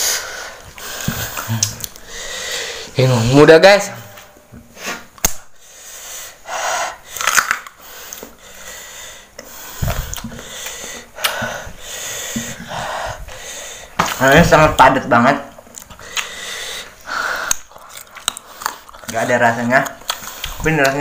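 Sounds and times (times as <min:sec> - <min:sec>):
sharp snap: 0:05.2 - 0:05.5
crunching and chewing: 0:07.1 - 0:08.4, 0:15.7 - 0:16.4, 0:17.4 - 0:21.0.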